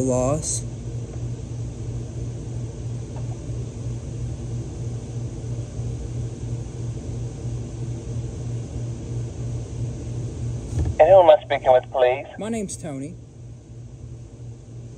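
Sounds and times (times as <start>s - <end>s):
machinery hum and rumble: 0.0s - 14.9s.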